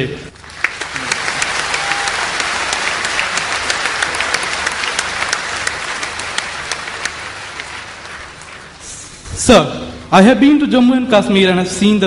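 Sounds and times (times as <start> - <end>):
audience applauding: 0.3 - 9.2.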